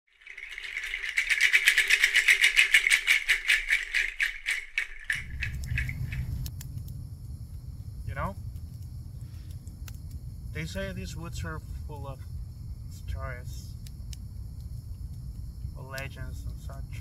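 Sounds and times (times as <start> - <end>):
rapid pulsing rattle: 0.1 - 6.5
low rumbling ambience: 5.1 - 17.0.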